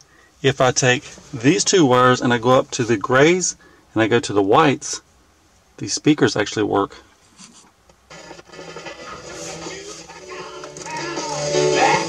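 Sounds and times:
music from car stereo: 0:08.1 - 0:12.0.

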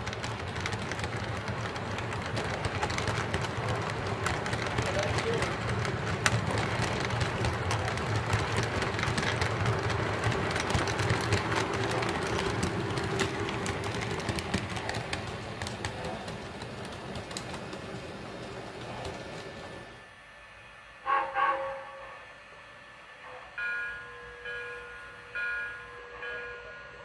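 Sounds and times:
wheels clicking over rail joints: 0:00.0 - 0:19.9
model train wheels rumbling: 0:00.0 - 0:20.0.

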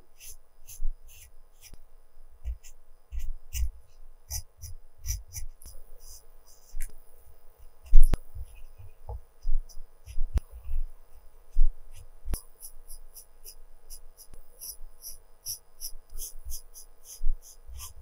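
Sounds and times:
pencil scratching on paper: 0:00.1 - 0:01.8, 0:02.4 - 0:06.9, 0:07.6 - 0:18.0.

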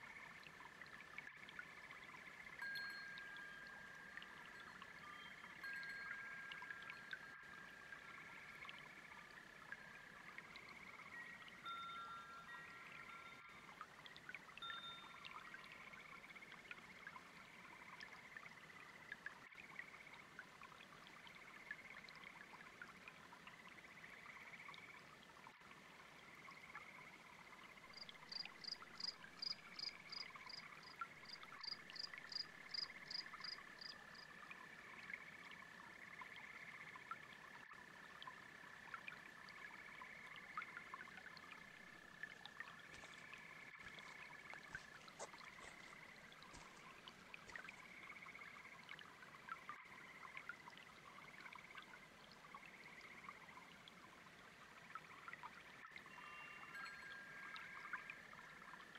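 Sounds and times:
babbling brook: 0:00.0 - 0:58.9
frogs trilling: 0:01.6 - 0:13.7, 0:26.2 - 0:51.9.

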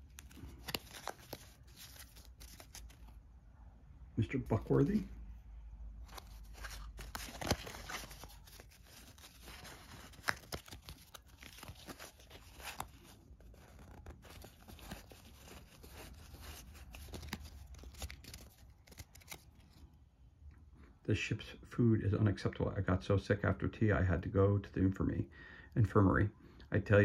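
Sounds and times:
paper cards sliding and rustling: 0:00.0 - 0:03.2, 0:06.0 - 0:19.8.

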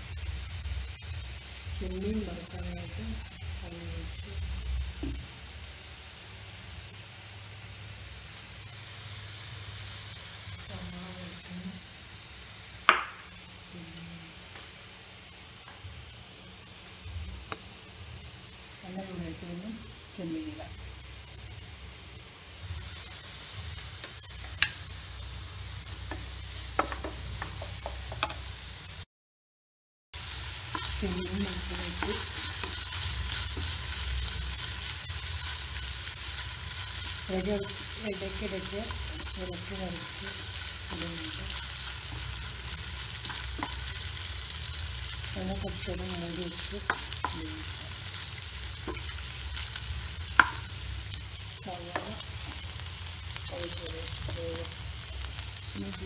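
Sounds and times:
prawns sizzling in oil: 0:00.0 - 0:29.1, 0:30.2 - 0:56.0
spatula knocking on pan: 0:26.8 - 0:28.4, 0:50.4 - 0:50.6.

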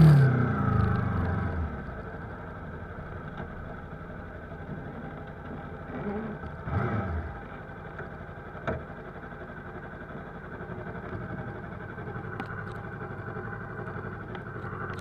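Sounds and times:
motorcycle engine idling: 0:00.6 - 0:15.0.

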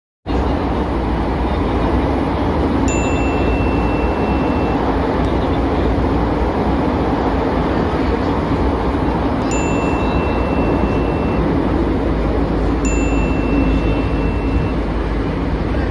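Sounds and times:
train rumble inside carriage: 0:00.3 - 0:15.9
thin high tone: 0:02.8 - 0:05.8, 0:09.4 - 0:15.5.

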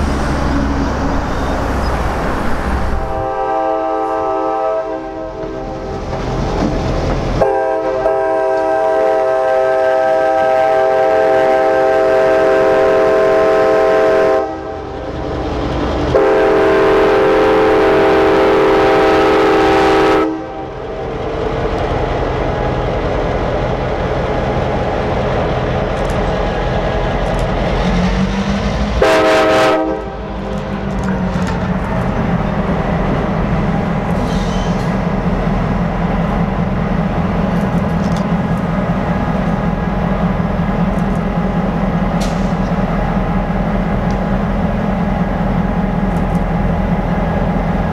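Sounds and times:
diesel engines running: 0:00.0 - 0:03.4
locomotive air horn blasts: 0:03.0 - 0:05.7, 0:07.4 - 0:14.8, 0:16.1 - 0:20.7, 0:29.0 - 0:30.3.

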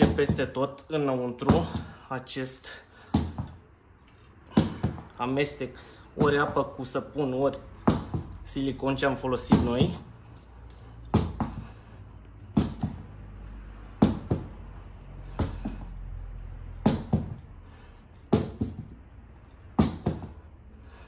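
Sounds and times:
wheel thudding on tiled floor: 0:00.0 - 0:00.6, 0:01.4 - 0:02.1, 0:02.7 - 0:03.7, 0:04.4 - 0:05.2, 0:06.0 - 0:06.9, 0:07.8 - 0:10.1, 0:11.0 - 0:19.1, 0:19.7 - 0:21.0.

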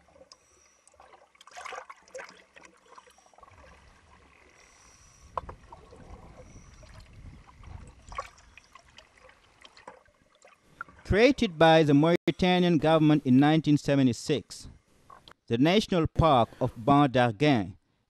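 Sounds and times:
water lapping: 0:00.0 - 0:11.1.

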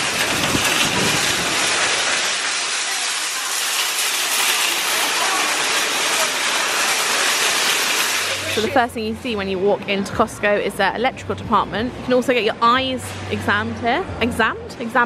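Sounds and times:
shopping trolley rattling on concrete: 0:00.0 - 0:08.7.

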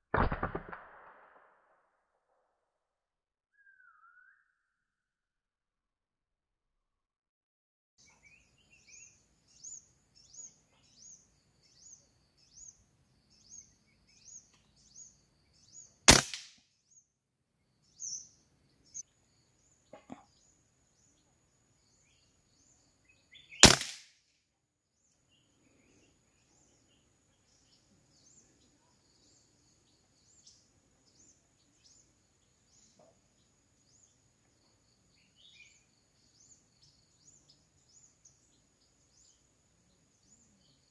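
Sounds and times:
rifle shots: 0:00.1 - 0:01.6, 0:16.1 - 0:16.5, 0:23.6 - 0:24.1
bird chirping: 0:03.5 - 0:04.9, 0:08.0 - 0:16.0, 0:16.8 - 0:23.8, 0:25.0 - 0:40.9.

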